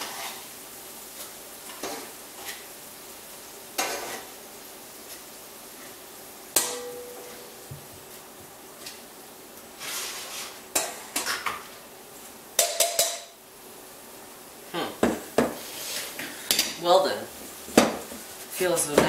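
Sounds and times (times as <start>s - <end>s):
metal tongs clattering on pan: 12.6s - 13.4s.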